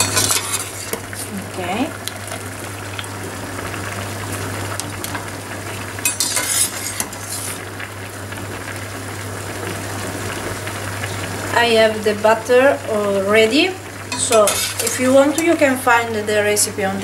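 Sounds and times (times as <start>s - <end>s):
metal spoon clinking on pot: 0.0s - 0.6s, 14.1s - 15.0s
water boiling in a pot: 0.0s - 17.0s.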